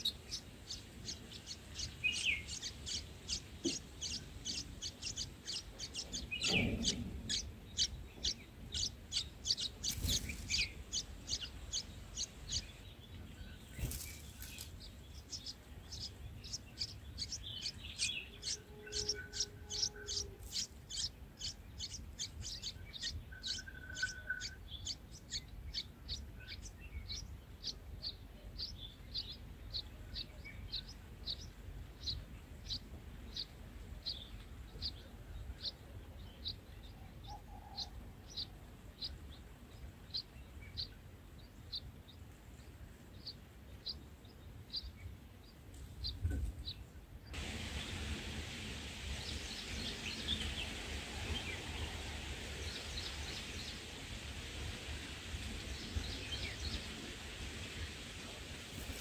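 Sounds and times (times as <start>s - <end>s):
bird rustling at nest: 13.7s - 14.9s, 58.7s - 59.0s
nestlings cheeping: 13.8s - 25.4s.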